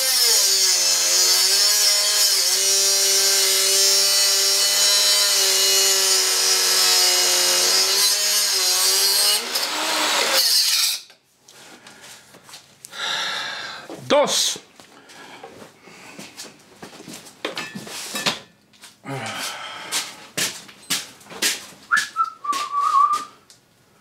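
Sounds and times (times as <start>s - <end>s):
angle grinder cutting steel: 0.0s - 11.1s.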